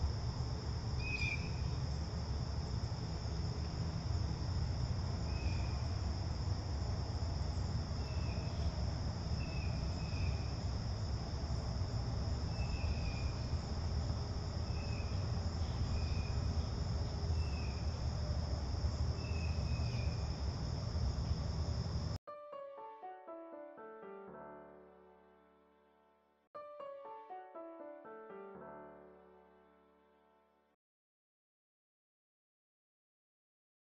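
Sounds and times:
crickets chirping: 0.0s - 22.2s
piano music: 22.2s - 30.6s.

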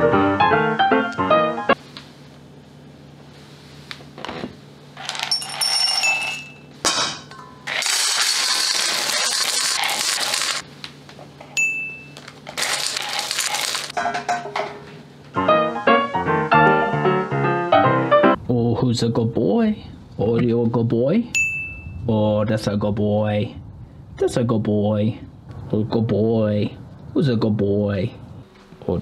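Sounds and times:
metallic ring: 5.1s - 8.9s, 11.6s - 12.2s, 21.4s - 22.0s
kibble rattling into metal bowl: 7.7s - 10.6s, 12.5s - 14.0s.

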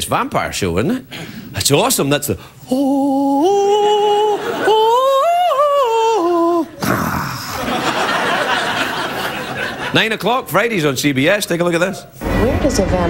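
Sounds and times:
man singing wordless high notes: 2.6s - 7.4s
audience laughing: 4.0s - 5.4s, 7.4s - 10.4s.

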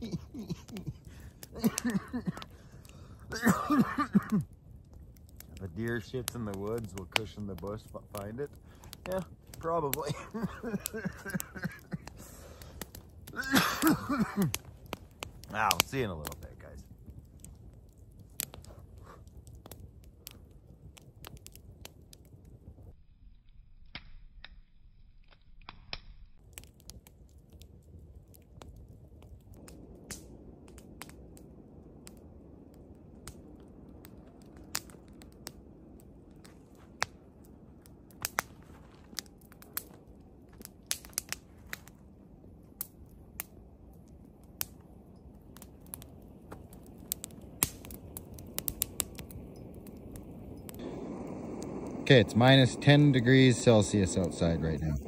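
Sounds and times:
footsteps crunching through snow: 38.5s - 39.2s.

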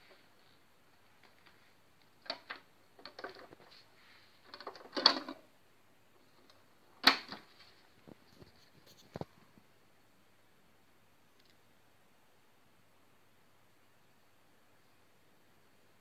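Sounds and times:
plastic clicks and clunks: 1.2s - 3.8s, 4.4s - 5.4s.

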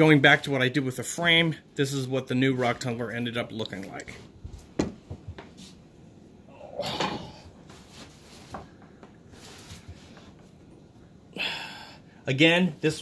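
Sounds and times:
rustling: 7.2s - 10.7s.

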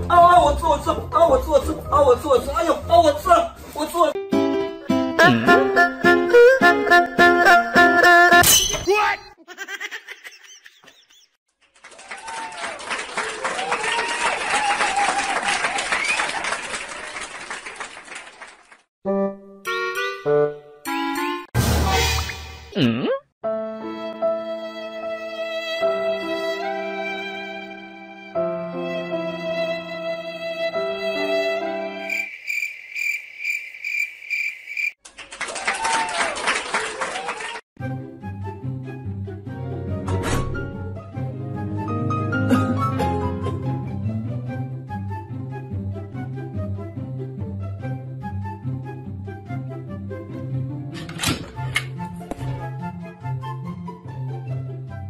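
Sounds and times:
violin music: 4.2s - 8.4s, 23.5s - 32.1s
cricket chirping: 32.1s - 35.0s.

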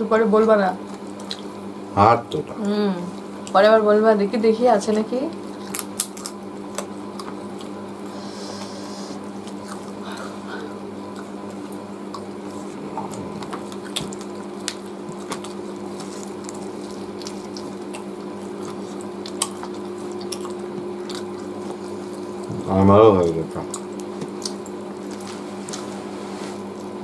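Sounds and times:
wet chewing and lip-smacking: 0.8s - 1.6s, 4.9s - 22.6s, 23.6s - 25.9s
low hum: 8.1s - 17.8s.

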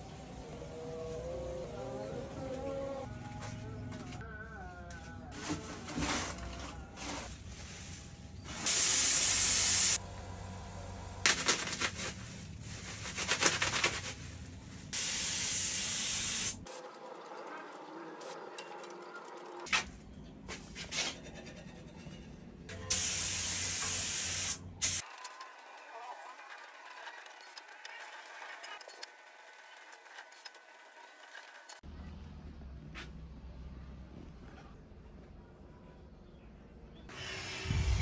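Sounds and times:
paint spray gun hissing: 8.6s - 10.0s, 15.0s - 16.6s, 22.9s - 25.0s.

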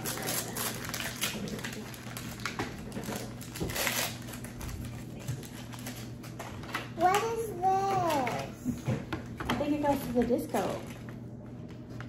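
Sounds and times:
packaging rustling and crinkling: 0.0s - 7.1s.

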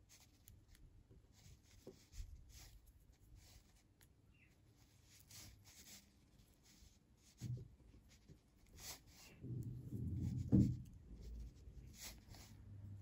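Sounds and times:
knitting needles scraping yarn: 0.0s - 13.0s
dull low bump: 9.3s - 12.0s.

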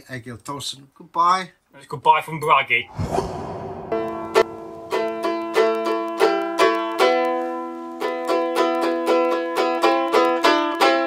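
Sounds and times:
plucked string melody: 4.9s - 11.0s.

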